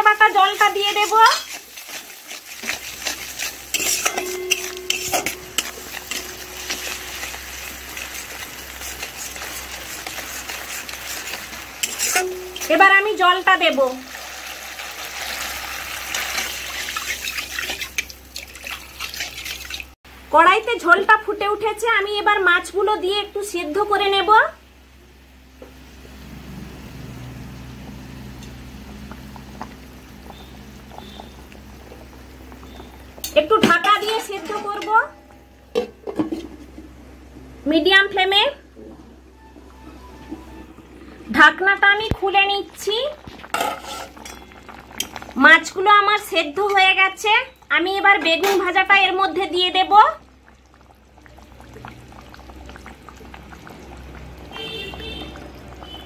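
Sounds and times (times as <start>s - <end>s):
gravy boiling and bubbling: 0.0s - 20.0s, 25.2s - 56.0s
light sizzle of frying: 0.0s - 56.0s
spatula scraping a pan: 0.4s - 12.7s, 43.5s - 44.5s.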